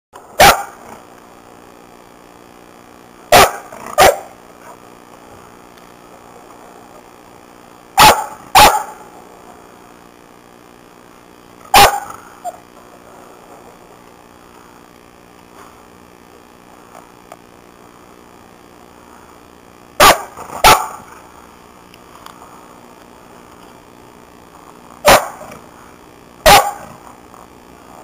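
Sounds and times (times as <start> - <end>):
dog barking: 0.4 - 0.8, 3.3 - 4.3, 8.0 - 9.0, 11.7 - 12.2, 20.0 - 21.0, 25.0 - 25.5, 26.4 - 27.0.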